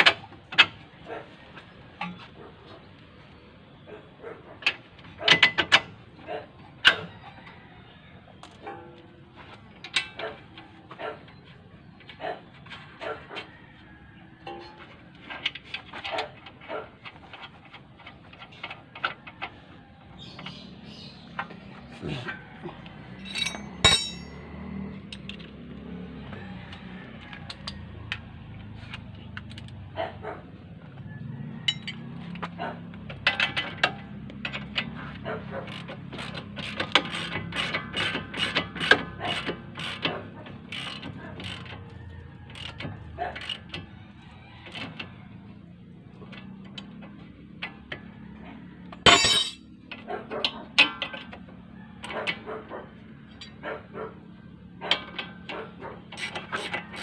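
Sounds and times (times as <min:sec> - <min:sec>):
metal tools knocking: 0:23.1 - 0:24.4, 0:31.7 - 0:32.0, 0:49.0 - 0:50.1
loud metal clank: 0:23.3 - 0:24.4, 0:49.1 - 0:49.6
ratchet wrench clicking: 0:35.7 - 0:40.1, 0:40.7 - 0:42.8, 0:43.4 - 0:43.7, 0:56.2 - 0:57.0.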